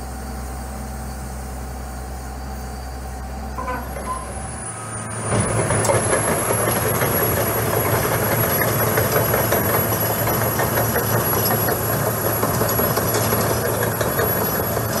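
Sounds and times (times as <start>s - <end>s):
diesel engine running: 0.0s - 15.0s
tracks clattering: 3.6s - 4.6s, 5.2s - 15.0s.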